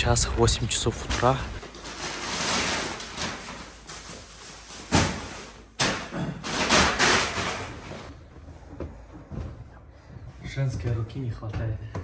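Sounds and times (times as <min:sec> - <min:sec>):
plastic bags rustling: 0:00.5 - 0:08.1
bags dropping with a thud: 0:02.3 - 0:08.1.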